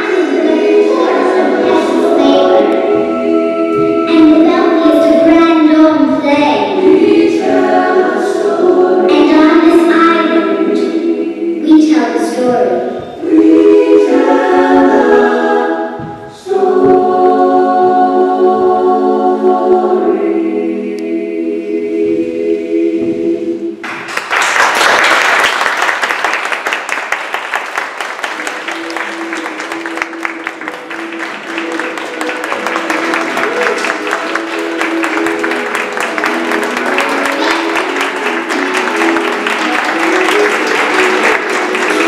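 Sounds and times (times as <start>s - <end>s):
faint tune: 0.0s - 7.5s
children singing a held chord: 0.0s - 23.8s
audience applause: 23.8s - 42.0s.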